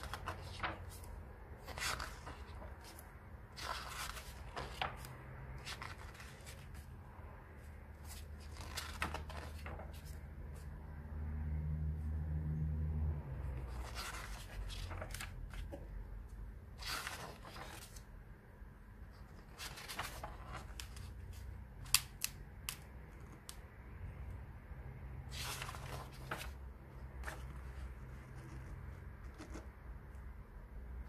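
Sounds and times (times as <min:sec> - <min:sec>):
pages turning: 0:00.0 - 0:06.9, 0:07.9 - 0:10.3, 0:13.6 - 0:16.0, 0:16.8 - 0:18.1, 0:19.2 - 0:23.6, 0:25.3 - 0:29.9
sharp paper clicks: 0:21.8 - 0:23.7.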